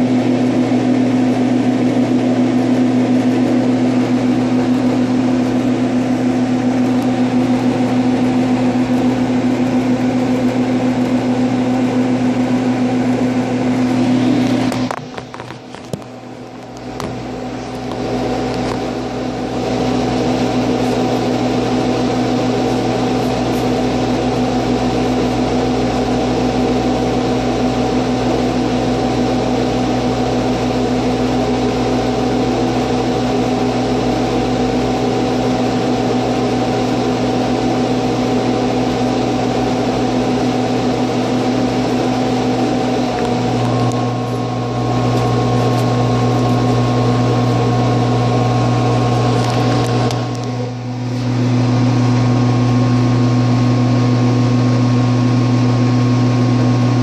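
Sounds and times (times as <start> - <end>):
compressor electric hum: 0.0 - 57.0
condenser fan rushing: 0.0 - 57.0
high whine: 0.0 - 57.0.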